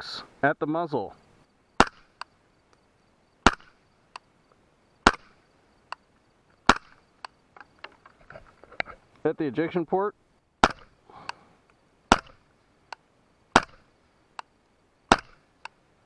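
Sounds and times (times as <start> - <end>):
suppressed rifle shots: 1.8 - 2.3, 3.4 - 4.2, 5.0 - 5.4, 6.6 - 7.0, 10.6 - 11.0, 12.1 - 12.5, 13.5 - 13.9, 15.1 - 15.5
faint clicks and ticks: 5.9 - 6.2, 12.9 - 13.1, 14.3 - 14.5, 15.6 - 15.8.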